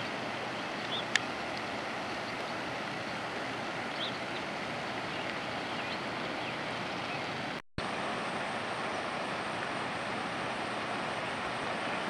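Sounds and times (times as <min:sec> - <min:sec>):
rushing flooded creek: 0:00.0 - 0:12.0.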